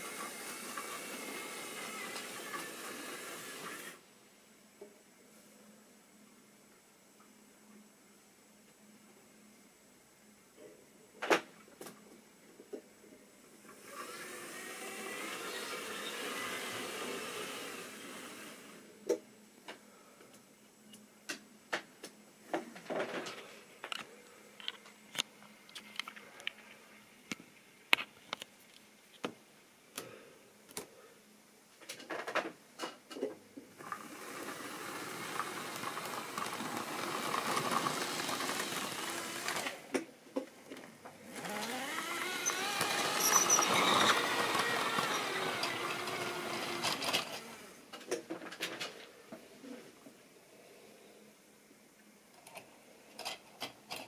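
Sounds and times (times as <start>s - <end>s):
model train motor whirring: 0.0s - 4.0s, 13.8s - 18.8s, 33.8s - 39.8s, 41.3s - 47.8s
model train wheel rumble: 33.8s - 39.8s, 41.4s - 47.5s.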